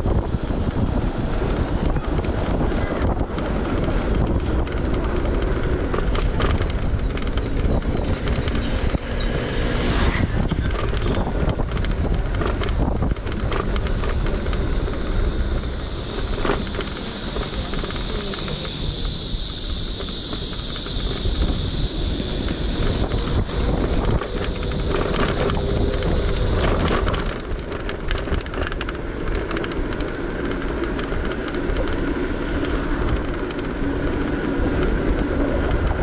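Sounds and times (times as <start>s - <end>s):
car road and engine rumble: 0.0s - 36.0s
wind buffeting microphone: 0.0s - 36.0s
high steady hiss: 12.8s - 35.5s.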